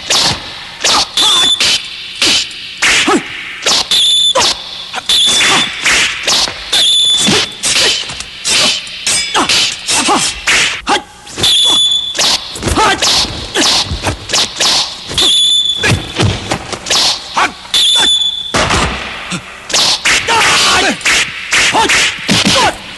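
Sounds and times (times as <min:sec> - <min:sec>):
swords clashing: 0:00.0 - 0:22.8
high metallic ringing: 0:06.7 - 0:10.5
sword swishes: 0:07.2 - 0:10.8, 0:11.4 - 0:16.0, 0:16.8 - 0:17.5.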